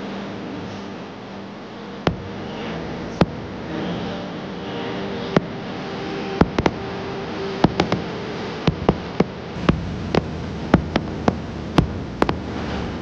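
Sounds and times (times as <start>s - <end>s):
steady background hiss: 0.0s - 13.0s
fireworks popping: 6.4s - 6.8s, 7.6s - 8.1s, 8.7s - 13.0s.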